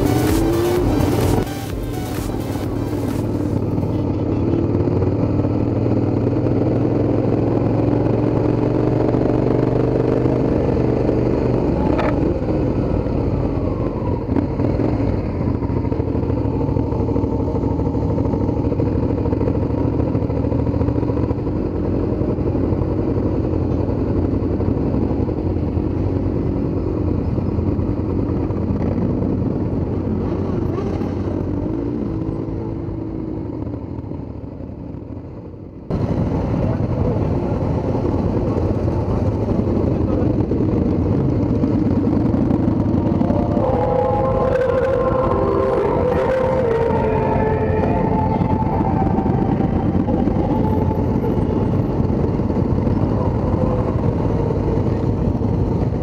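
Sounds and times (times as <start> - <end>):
motorcycle engine running: 0.0 - 56.0
other motorcycle engines: 0.0 - 56.0.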